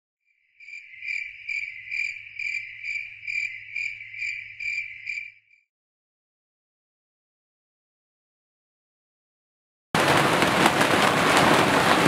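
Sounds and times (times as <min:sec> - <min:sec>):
insect-like chirping trill: 0:00.3 - 0:05.6.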